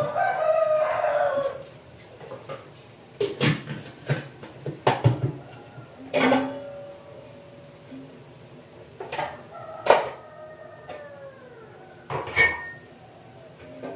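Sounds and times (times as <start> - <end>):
kitchenware clattering on counter: 6.1 - 6.8, 12.1 - 12.9.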